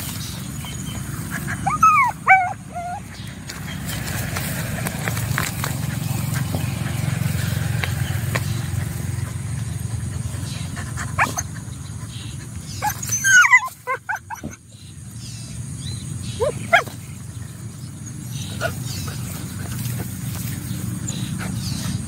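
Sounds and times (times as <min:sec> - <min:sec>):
dog yelping: 0:00.6 - 0:03.9, 0:10.9 - 0:11.7, 0:12.7 - 0:14.6, 0:16.3 - 0:17.0, 0:18.4 - 0:19.2.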